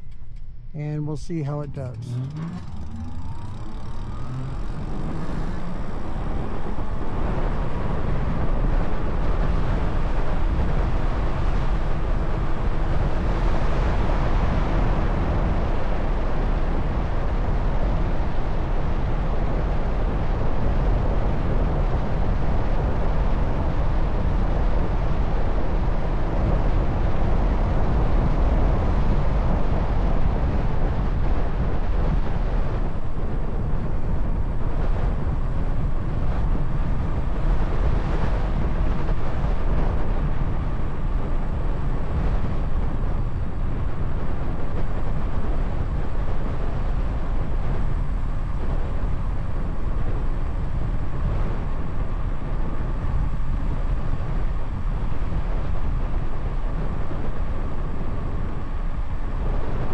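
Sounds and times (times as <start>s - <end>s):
faint rising whine: 0.0s - 18.8s
wind buffeting microphone: 1.3s - 59.9s.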